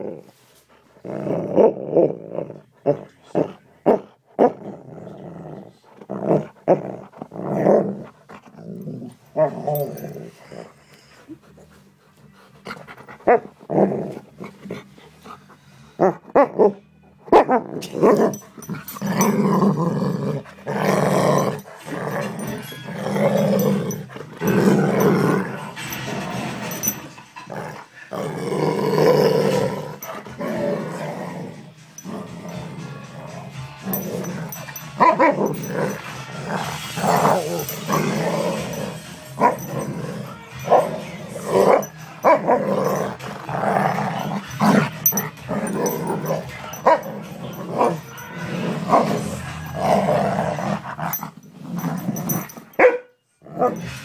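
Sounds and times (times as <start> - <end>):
dog growling: 0.9 - 16.8, 17.5 - 52.8, 53.4 - 54.0.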